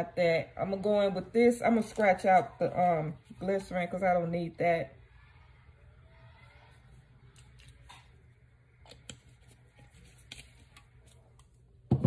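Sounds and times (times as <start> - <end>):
plastic gloves crinkling: 6.6 - 11.7.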